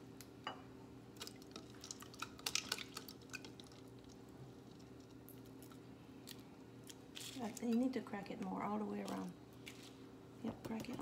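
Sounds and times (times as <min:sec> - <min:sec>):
eggshell cracking: 0:01.2 - 0:04.2.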